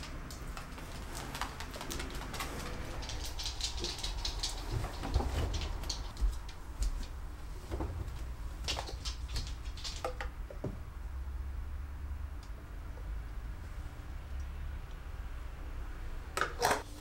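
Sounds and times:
fabric rustling: 0.0s - 9.9s.

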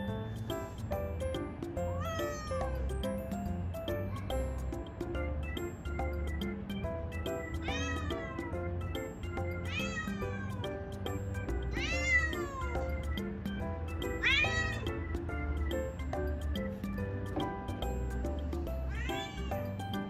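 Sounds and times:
background music with beat: 0.0s - 20.0s
cat meowing: 2.0s - 2.8s, 7.6s - 8.6s, 9.6s - 10.8s, 11.7s - 13.0s, 14.2s - 15.0s, 18.8s - 19.8s.

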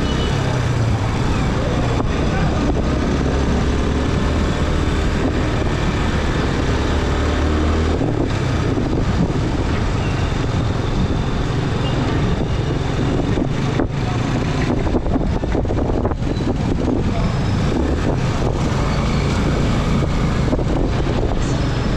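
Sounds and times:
motorcycle engine humming: 0.0s - 21.9s
road and traffic noise: 0.0s - 21.9s.

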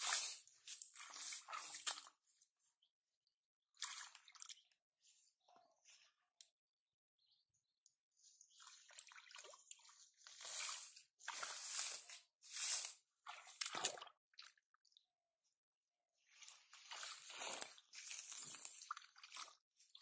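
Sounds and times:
hands in mud and water: 0.0s - 2.6s, 3.7s - 5.4s, 8.2s - 15.1s, 16.3s - 20.0s.

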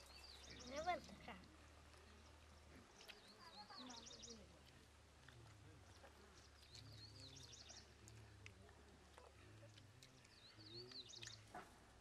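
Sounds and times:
bird singing: 0.0s - 1.3s, 6.4s - 7.9s, 10.3s - 11.5s.

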